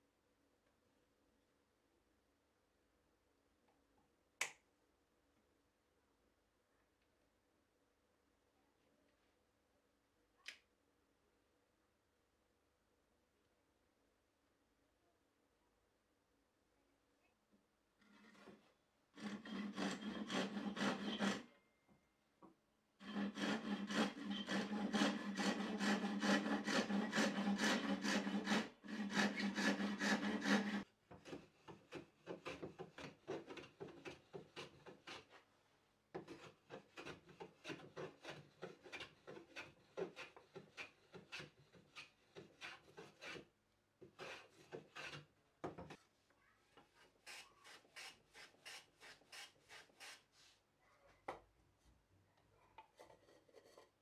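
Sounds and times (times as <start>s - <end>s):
handsaw cutting wood: 18.1s - 21.5s, 23.0s - 35.4s, 36.2s - 43.5s, 44.1s - 45.3s, 47.0s - 50.2s
hand tool rubbing wood: 19.2s - 21.4s, 23.0s - 35.4s, 36.2s - 43.5s, 44.1s - 45.3s, 46.9s - 50.6s.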